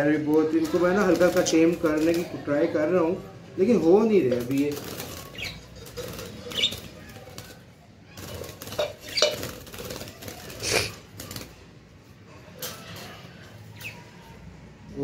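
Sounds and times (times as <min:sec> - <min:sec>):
birds fluttering: 0:00.0 - 0:15.0
wire birdcage clinking and rattling: 0:04.3 - 0:07.6, 0:08.2 - 0:10.6.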